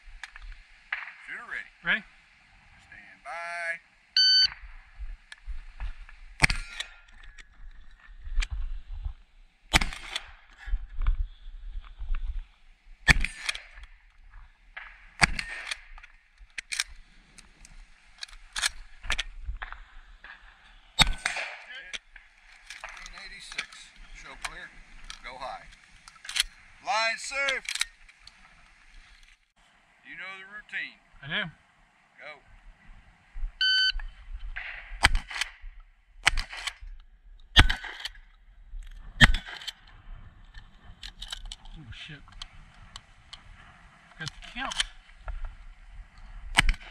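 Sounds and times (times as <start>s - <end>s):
sharp crack: 0.0s - 1.7s, 6.4s - 7.1s, 9.7s - 10.6s, 13.0s - 14.1s, 14.7s - 28.9s, 34.5s - 36.9s, 37.6s - 38.3s, 39.2s - 39.8s, 46.4s - 46.9s
shotgun shots: 6.4s - 7.0s, 9.7s - 10.3s, 13.1s - 13.8s, 15.2s - 15.9s, 21.0s - 21.7s, 34.6s - 35.6s, 36.2s - 36.8s, 37.6s - 38.0s, 39.2s - 39.7s, 46.5s - 46.9s.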